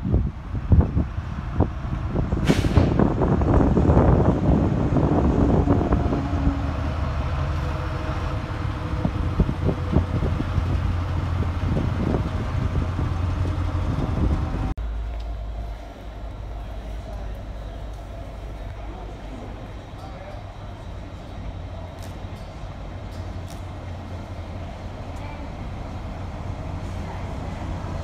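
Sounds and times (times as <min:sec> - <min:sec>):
diesel locomotive engines droning: 0:00.0 - 0:28.0.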